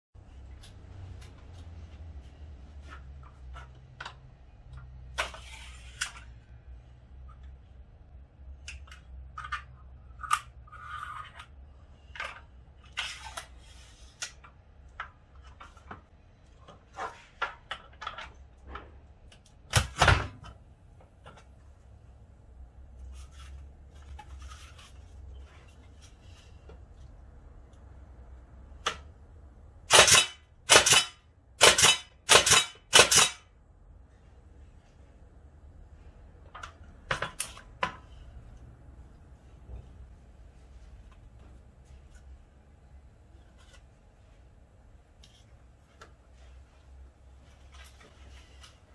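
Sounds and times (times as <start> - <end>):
pneumatic stapler bangs: 29.9 - 33.4.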